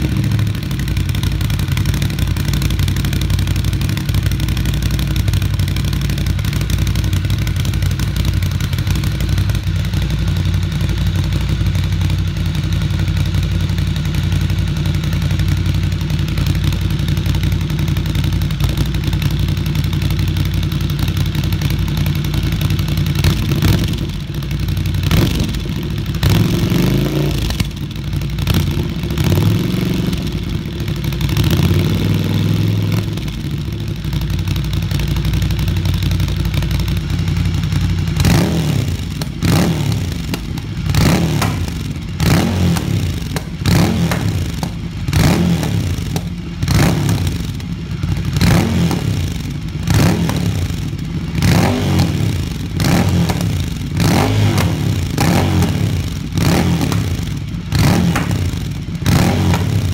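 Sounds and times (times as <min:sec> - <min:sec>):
motorcycle engine idling: 0:00.0 - 0:59.9.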